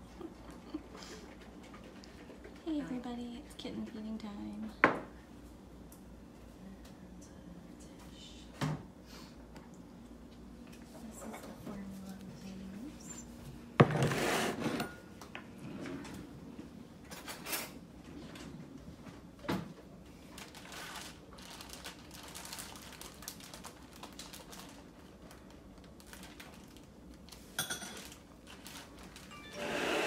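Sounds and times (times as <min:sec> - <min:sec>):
utensils and dishes clinking: 0:27.6 - 0:28.2.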